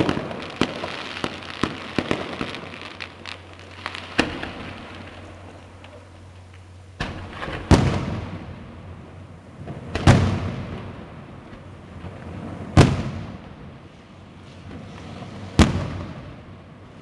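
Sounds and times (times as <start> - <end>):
firework shells bursting: 0.0 - 8.4
firework crackling: 0.0 - 17.0.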